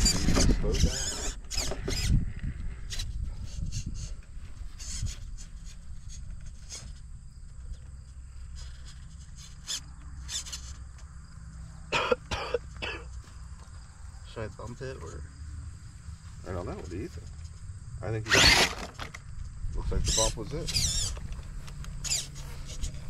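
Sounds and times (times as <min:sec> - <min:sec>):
short clicks and scrapes: 0:00.0 - 0:02.2, 0:08.5 - 0:11.1
insects chirping: 0:00.0 - 0:23.0.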